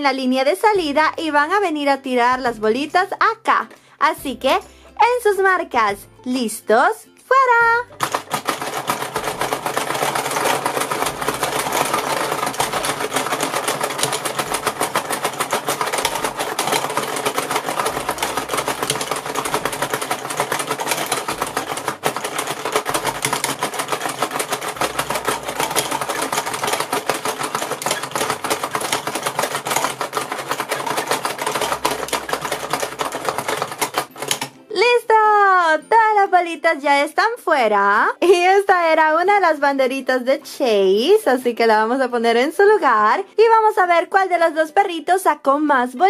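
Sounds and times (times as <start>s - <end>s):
plastic toy clattering and ticking: 7.8s - 34.6s.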